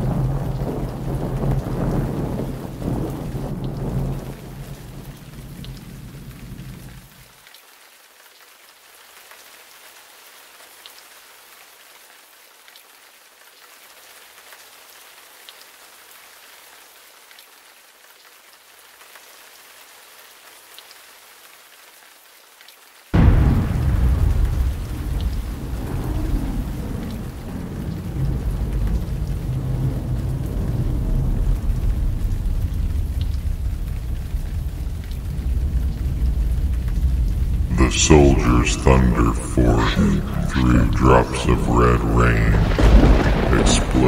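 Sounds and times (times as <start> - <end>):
thunder rumble: 0.0 - 7.0, 23.2 - 44.0
rain hissing: 0.0 - 7.4, 23.2 - 44.0
raindrop ticks: 0.0 - 7.7, 23.7 - 37.7
deep boom: 23.2 - 31.4, 33.4 - 44.0.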